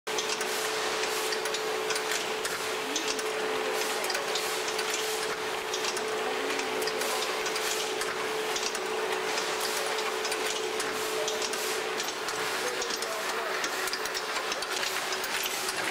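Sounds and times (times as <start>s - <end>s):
machinery hum and hiss: 0.1s - 15.9s
short machine clicks and ticks: 0.1s - 15.9s.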